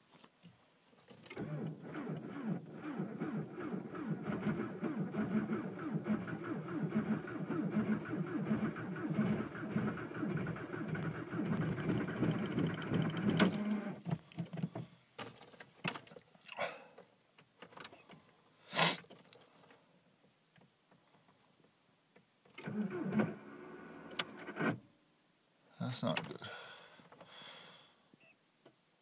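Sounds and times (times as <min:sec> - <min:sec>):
diesel engine turning over rough: 0:01.4 - 0:14.0.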